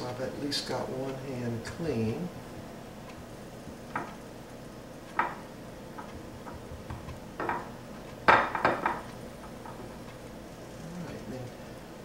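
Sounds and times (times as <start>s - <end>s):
knocks and taps in glass dish: 6.4s - 7.7s.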